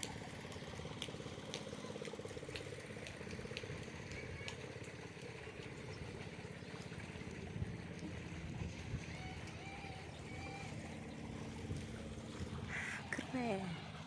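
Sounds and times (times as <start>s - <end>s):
engine idling: 0.0s - 14.0s
faint regular tick: 1.0s - 5.8s.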